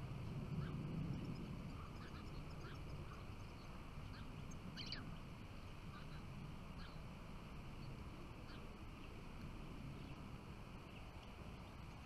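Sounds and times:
low steady rumble: 0:00.0 - 0:12.0
finches chirping: 0:00.5 - 0:05.2, 0:05.8 - 0:07.1.

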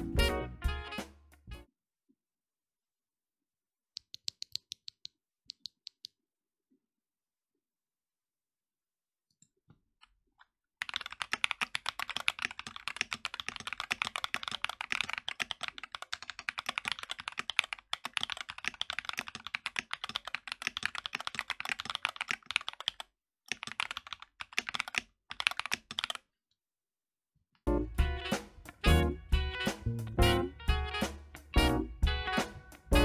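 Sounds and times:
mechanical keyboard typing: 0:10.8 - 0:26.3.

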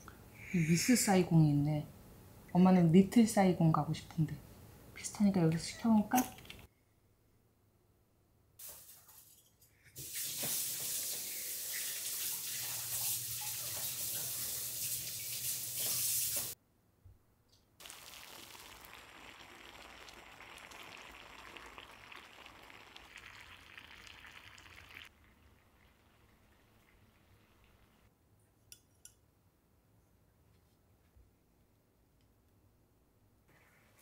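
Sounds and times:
tap water running into sink: 0:10.0 - 0:16.6
water boiling in saucepan: 0:17.8 - 0:28.1.

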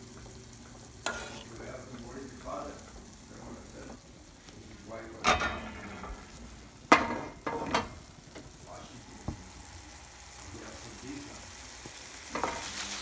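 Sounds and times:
food sizzling in a frying pan: 0:00.0 - 0:13.0
metal cookware clanking: 0:01.0 - 0:01.5, 0:05.2 - 0:06.2, 0:06.9 - 0:08.1.

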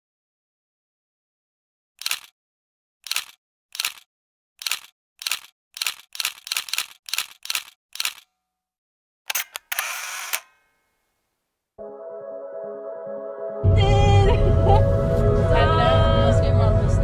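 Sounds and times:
camera shutter clicks: 0:02.0 - 0:02.3, 0:04.6 - 0:08.3, 0:09.3 - 0:10.7.

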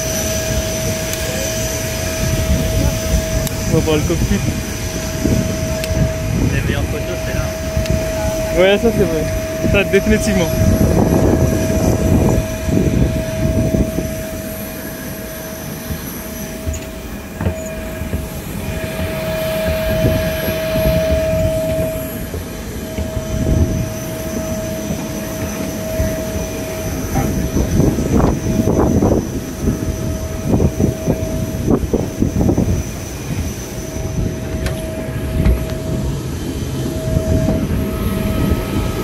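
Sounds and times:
aircraft high whine: 0:00.0 - 0:39.0
low rumble: 0:00.0 - 0:39.0
footsteps on metal stairs: 0:15.8 - 0:27.8, 0:34.2 - 0:36.2.

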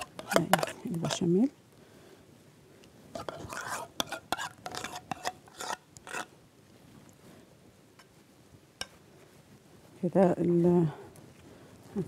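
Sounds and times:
spoon scraping and tapping bowl: 0:00.0 - 0:01.3, 0:03.2 - 0:06.3.

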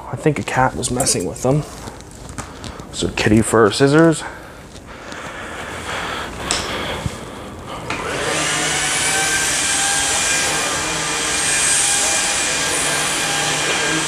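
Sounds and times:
vacuum motor whining: 0:07.8 - 0:14.0.

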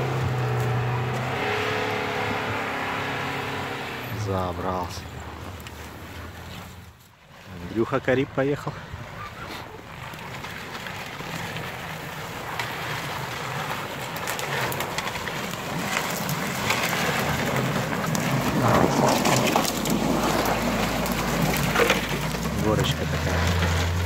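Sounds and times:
car engine running: 0:00.0 - 0:07.0, 0:09.8 - 0:24.0
branches scraping against car: 0:00.0 - 0:24.0.

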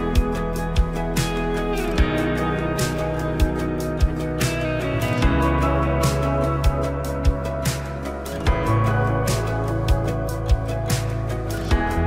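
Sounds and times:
background music with drum beat: 0:00.0 - 0:12.0.

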